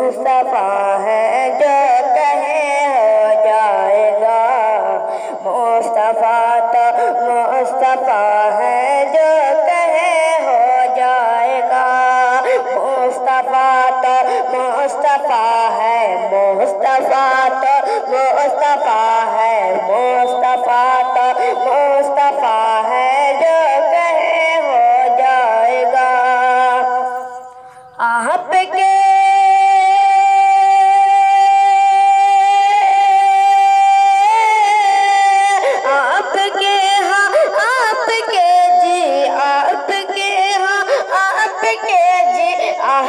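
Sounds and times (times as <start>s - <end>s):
boy singing devotional song: 0.0s - 43.0s.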